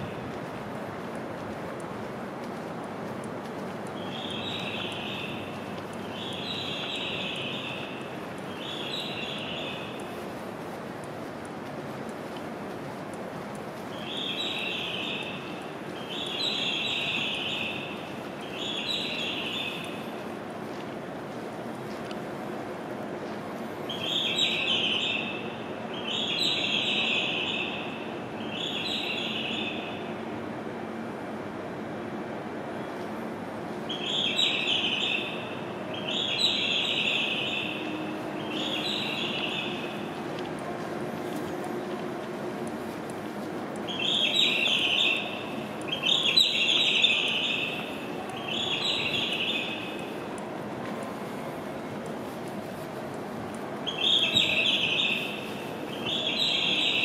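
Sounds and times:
train rumbling into platform: 0.0 - 57.0
recorded bird chirping: 4.0 - 10.1, 13.9 - 20.1, 23.9 - 30.1, 33.9 - 40.1, 43.8 - 50.3, 53.8 - 57.0
platform background noise: 32.3 - 57.0.

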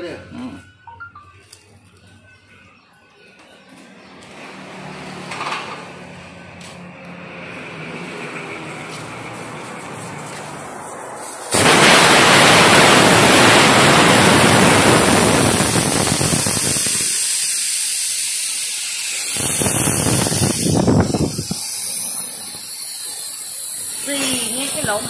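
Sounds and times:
compressed air hissing through valve: 11.1 - 11.6, 15.4 - 25.0.

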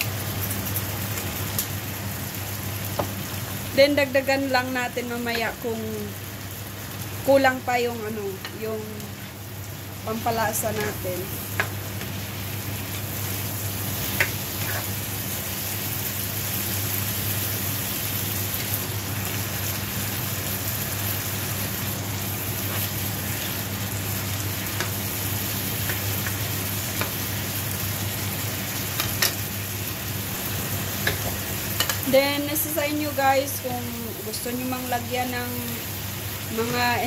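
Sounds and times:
food sizzling in frying pan: 0.0 - 37.0
spatula stirring: 14.0 - 15.0.

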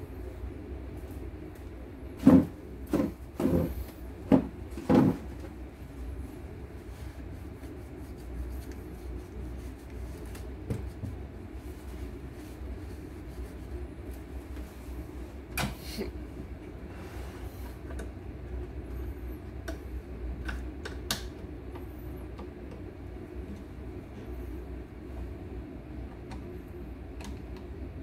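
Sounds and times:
tools knocking on wooden workbench: 4.3 - 5.3
quiet handling noise: 16.4 - 27.8.

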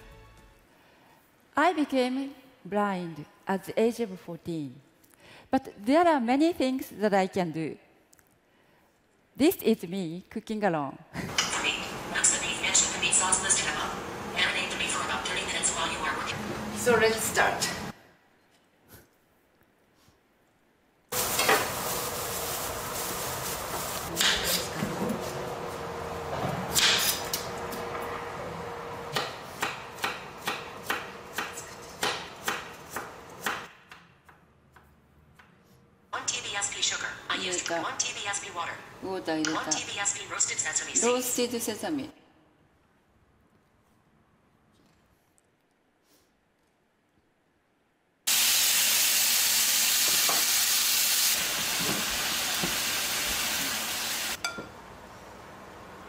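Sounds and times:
meat sizzling in a pan: 48.3 - 54.4.

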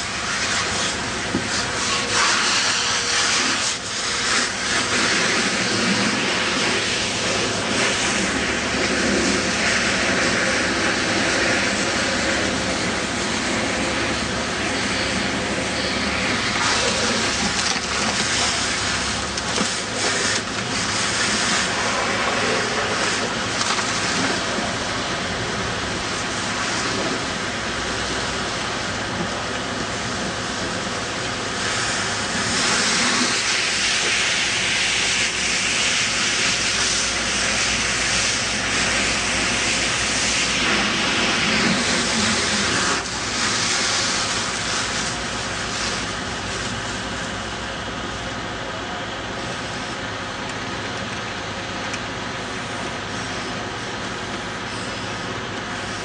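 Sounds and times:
fire hose spraying water: 0.0 - 56.0
engine humming: 3.9 - 33.7.

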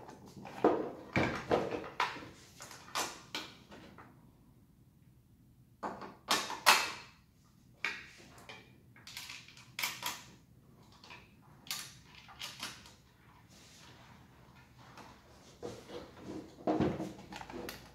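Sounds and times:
plastic parts clacking and scraping: 7.9 - 13.1, 15.7 - 17.9.

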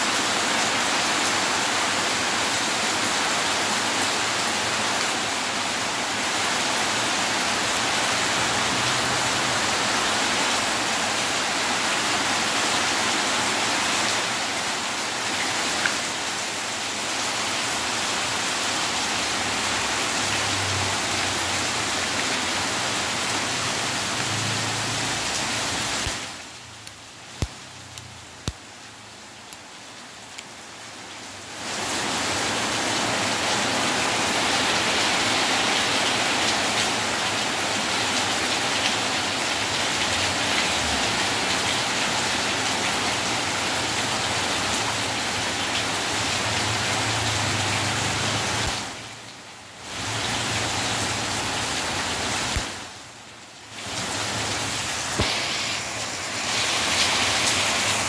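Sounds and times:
steady rushing hiss: 54.0 - 58.0.

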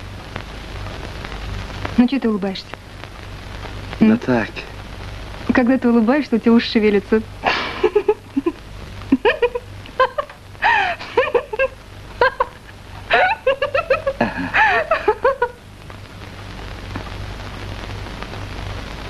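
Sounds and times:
rain hissing: 0.0 - 19.0
woman giggling: 7.4 - 15.6.

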